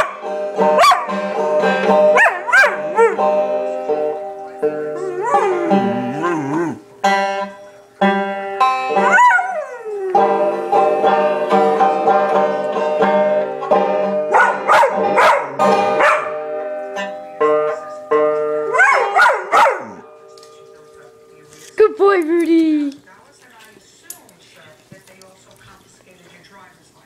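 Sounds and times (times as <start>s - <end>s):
plucked banjo: 0.0s - 21.6s
dog howling: 4.8s - 6.9s, 8.9s - 11.2s, 18.7s - 20.0s.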